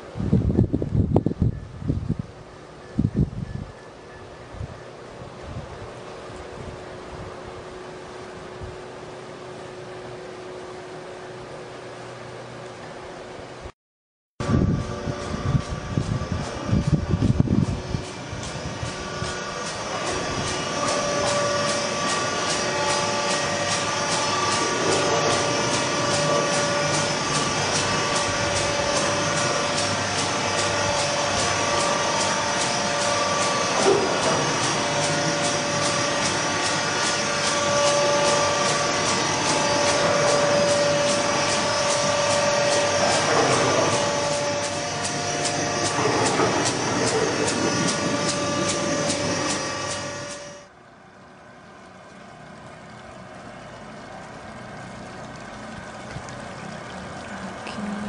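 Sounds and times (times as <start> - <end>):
pumps and motors hissing and humming: 14.4 - 58.0.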